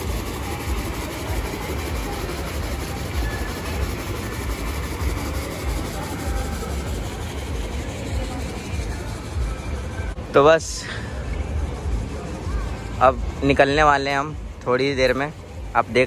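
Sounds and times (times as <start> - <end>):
fountain water pouring into pool: 0.0 - 9.0.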